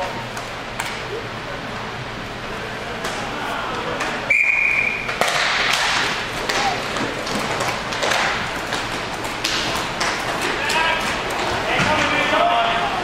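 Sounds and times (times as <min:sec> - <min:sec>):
referee's whistle blast: 0:04.3 - 0:05.1
clacks of sticks and puck: 0:05.1 - 0:12.4.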